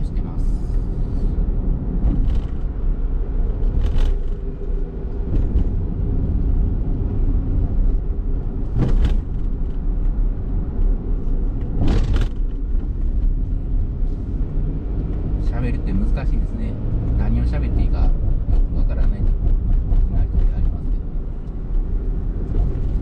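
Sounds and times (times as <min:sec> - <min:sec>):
car engine and tyres rumbling: 0:00.0 - 0:23.0
passing vehicle whooshes: 0:00.0 - 0:23.0.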